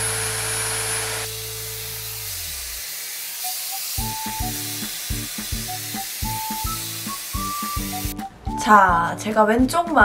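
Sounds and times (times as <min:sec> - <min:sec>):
hair styler blowing air: 0:00.0 - 0:08.2
plucked melody: 0:04.0 - 0:09.4.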